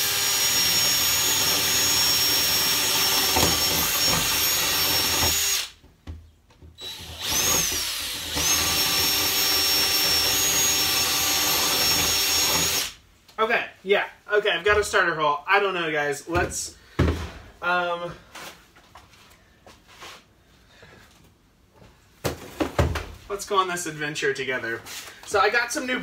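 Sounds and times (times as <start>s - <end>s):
power drill boring wood: 0.0s - 5.8s, 6.8s - 13.0s.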